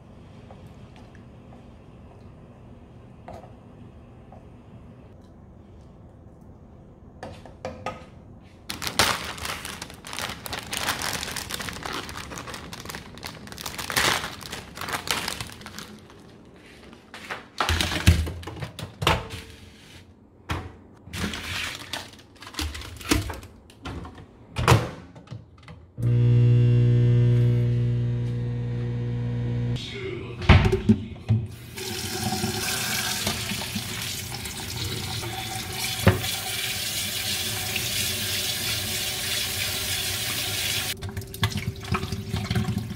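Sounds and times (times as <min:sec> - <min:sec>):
steady electric hum: 0:26.0 - 0:30.4
water pouring into a colander: 0:31.6 - 0:42.9.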